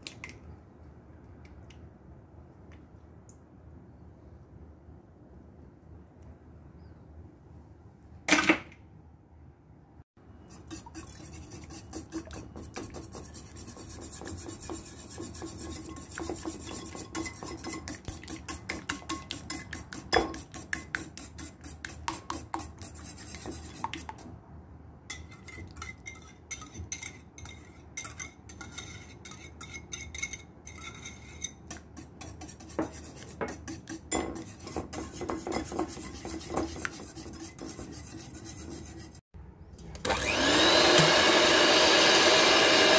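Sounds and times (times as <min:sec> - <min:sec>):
whisk scraping bowl: 0:10.4 - 0:24.3, 0:25.1 - 0:39.2, 0:40.1 - 0:42.9.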